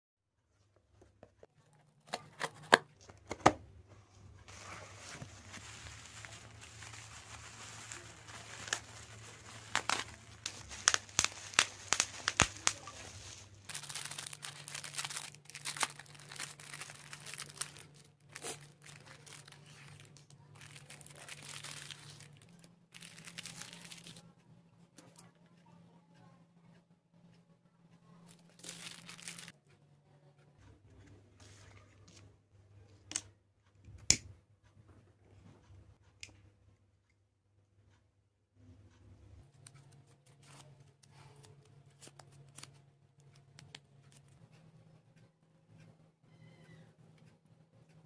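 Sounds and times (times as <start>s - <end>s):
plastic wrapping crinkling: 4.4s - 24.2s, 28.3s - 29.5s
packing tape tearing: 5.5s - 22.4s
sharp clicks and snaps: 33.9s - 34.4s.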